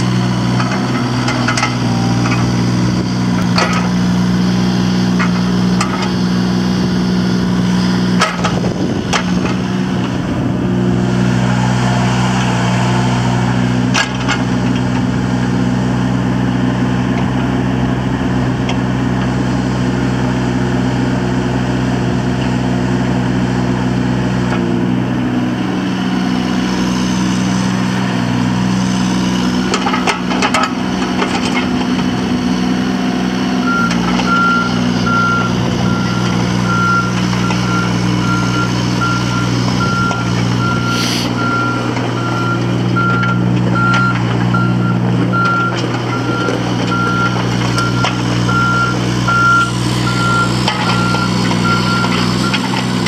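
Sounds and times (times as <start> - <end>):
diesel engine running: 0.0 - 53.0
warning alarm beeping: 33.7 - 52.6.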